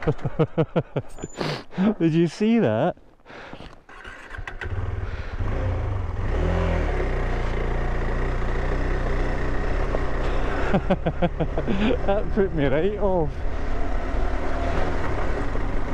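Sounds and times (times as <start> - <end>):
motorcycle engine under load: 0.0 - 0.6, 3.3 - 15.9.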